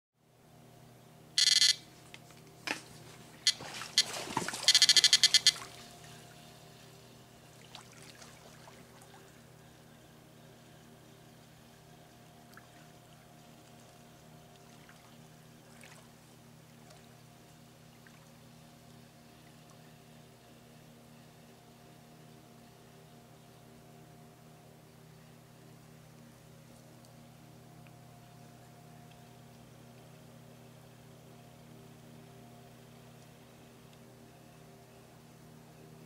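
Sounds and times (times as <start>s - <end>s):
steady low hum: 0.2s - 36.0s
bite alarm beeping: 1.4s - 1.9s, 3.5s - 5.8s.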